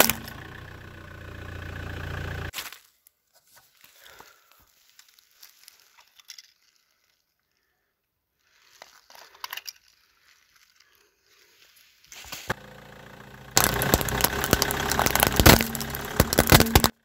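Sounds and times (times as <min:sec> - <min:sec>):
broken plastic and glass handled: 0:04.7 - 0:07.5, 0:08.5 - 0:11.0, 0:13.6 - 0:17.0.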